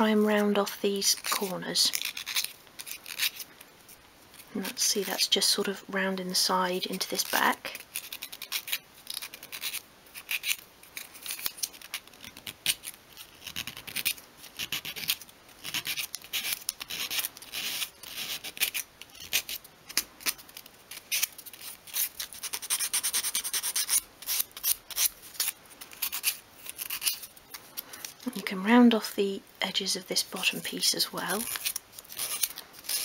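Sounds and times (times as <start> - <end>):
sandpaper rubbing on wood: 21.9 - 27.2.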